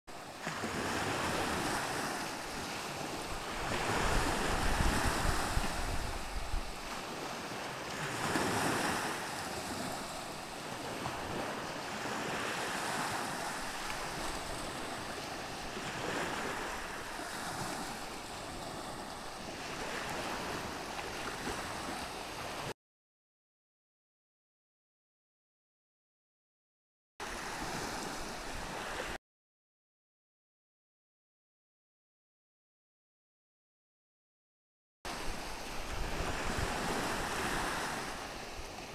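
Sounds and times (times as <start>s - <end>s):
waves washing in: 0.1s - 22.7s, 27.2s - 29.2s, 35.1s - 38.9s
wind buffeting microphone: 3.3s - 7.0s.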